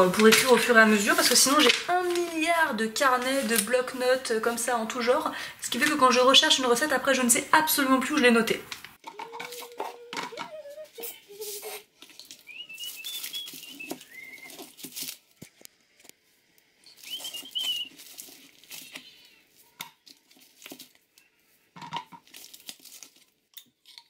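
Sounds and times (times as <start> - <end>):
plastic packaging crinkling: 0.0 - 4.2, 8.4 - 24.0
kitchen things knocking: 9.0 - 10.6, 21.8 - 22.2
high sped-up whistling: 12.5 - 14.6, 17.0 - 17.9.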